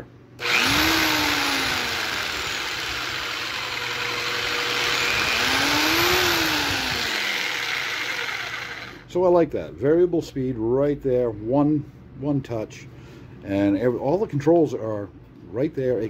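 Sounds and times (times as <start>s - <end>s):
jigsaw motor running: 0.4s - 9.1s.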